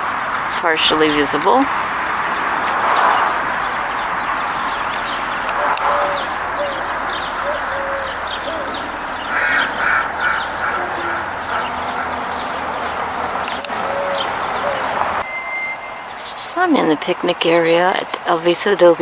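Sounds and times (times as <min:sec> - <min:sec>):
small birds chirping: 0:00.0 - 0:15.2, 0:15.9 - 0:19.0
bird honking calls: 0:03.6 - 0:16.6.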